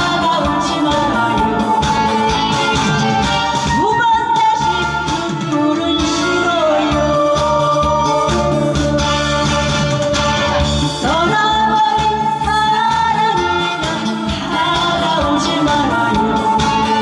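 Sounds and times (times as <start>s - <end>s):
woman singing into microphone: 0.0s - 9.8s, 10.9s - 17.0s
amplified backing music: 0.0s - 17.0s.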